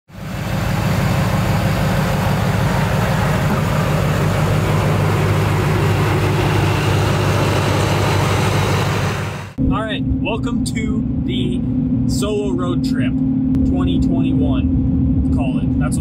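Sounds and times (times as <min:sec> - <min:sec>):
truck engine idling: 0:00.1 - 0:09.7.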